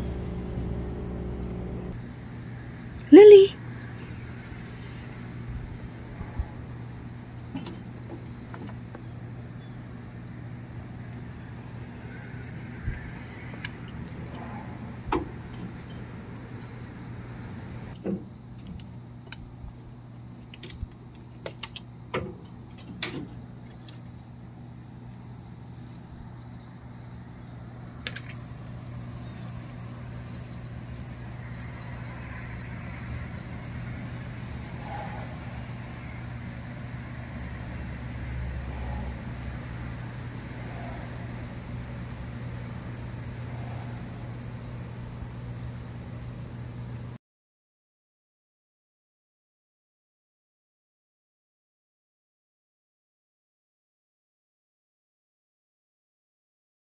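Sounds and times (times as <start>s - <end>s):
low hum: 0.0s - 3.2s
insects high-pitched drone: 0.0s - 47.2s.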